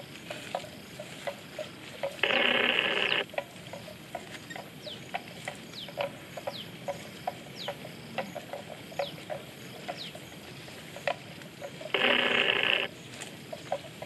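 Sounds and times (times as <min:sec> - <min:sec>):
bird downward-sliding calls: 0:02.2 - 0:03.2, 0:11.9 - 0:12.9.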